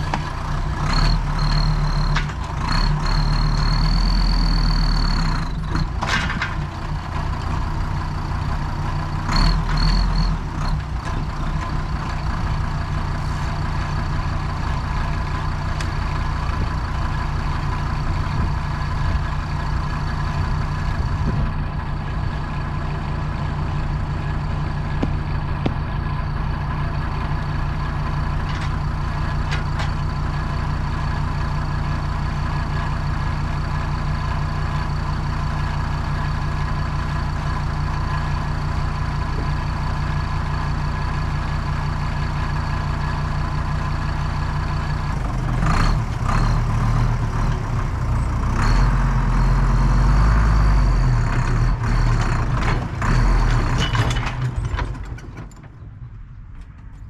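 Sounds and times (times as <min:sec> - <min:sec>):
tractor diesel engine: 0:00.0 - 0:57.0
knocks and clanks: 0:52.2 - 0:57.0.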